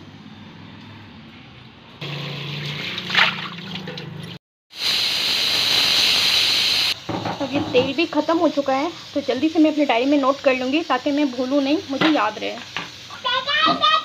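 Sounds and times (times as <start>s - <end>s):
tap water splashing into tub: 2.6s - 4.3s
pressure cooker hissing: 4.7s - 14.0s.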